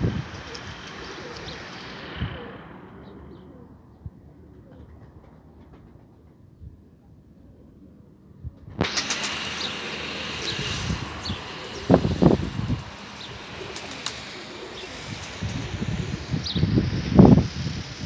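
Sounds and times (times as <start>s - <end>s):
steady rushing noise: 0.0s - 6.5s, 8.6s - 18.0s
pigeons cooing: 0.1s - 6.2s, 6.8s - 17.3s
pigeon wings flapping: 4.5s - 6.4s, 8.6s - 16.3s.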